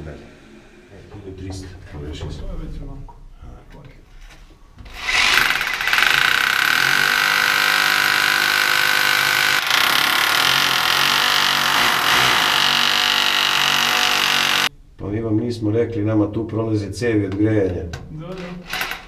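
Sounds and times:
cordless drill drilling into concrete: 5.0 - 14.7.

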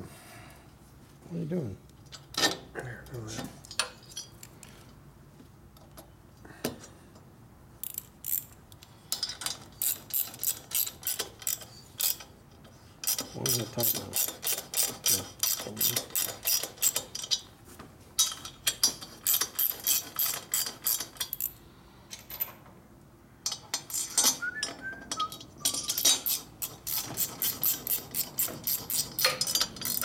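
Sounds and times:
hand ratchet clicking: 7.8 - 12.3, 13.0 - 17.4, 18.2 - 21.6, 23.4 - 30.0.

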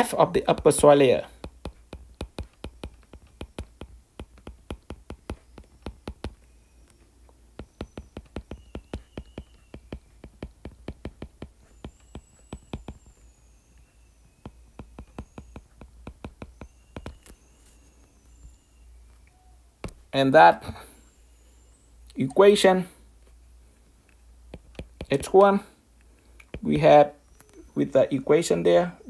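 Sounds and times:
faint low hum: 0.0 - 29.0
stylus tapping on glass screen: 0.4 - 6.5, 7.6 - 13.2, 14.4 - 17.4, 24.5 - 25.5.

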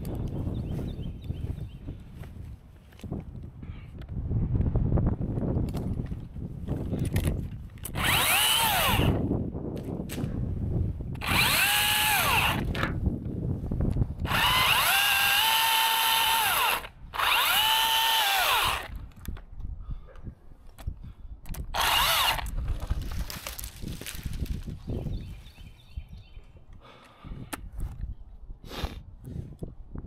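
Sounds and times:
electric chainsaw motor whining: 7.8 - 9.3, 11.2 - 12.8, 14.2 - 19.0, 21.7 - 22.6.

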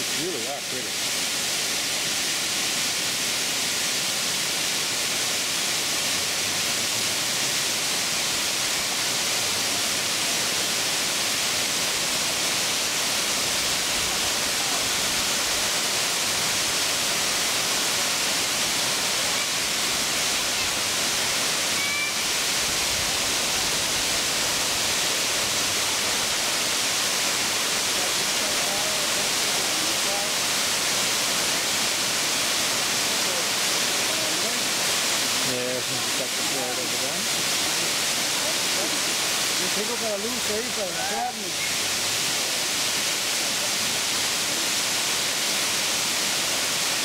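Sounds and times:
waterfall rushing into pool: 0.0 - 47.0.

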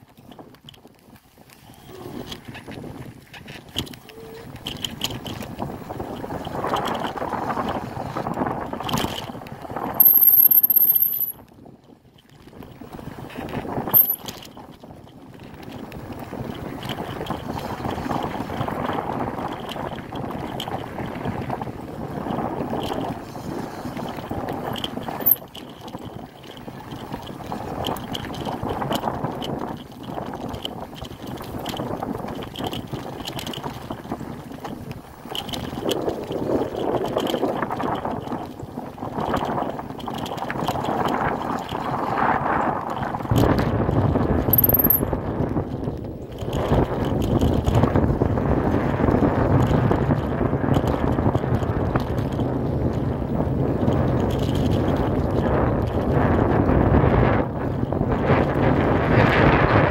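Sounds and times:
wind on microphone: 0.0 - 10.0, 11.4 - 59.9
bicycle tyres on dirt: 0.0 - 59.9
bike rattles and clicks: 0.0 - 59.9.

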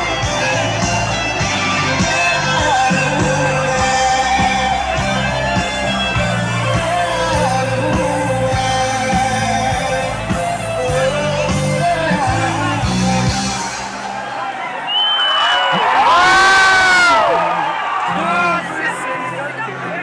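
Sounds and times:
live band playing: 0.0 - 14.8.

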